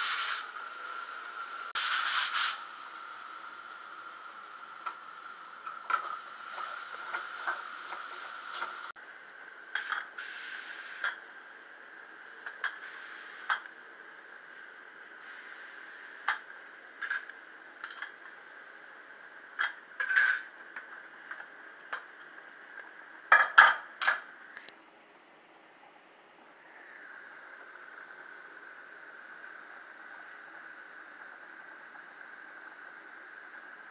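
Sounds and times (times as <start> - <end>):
pressure cooker steam hissing: 0.0 - 8.9, 9.8 - 11.2, 12.8 - 13.6, 15.2 - 16.4.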